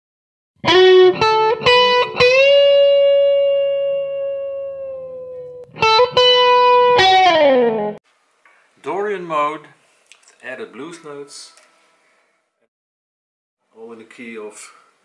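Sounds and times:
electric guitar melody: 0.6 - 8.0.

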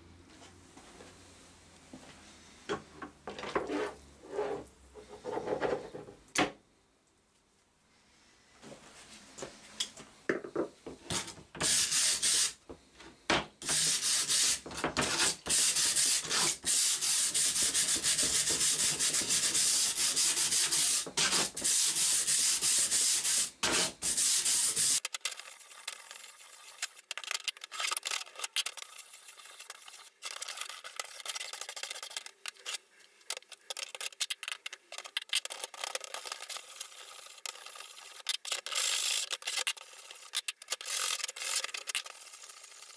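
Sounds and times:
wire brush scrubbing steel: 13.7 - 32.8.

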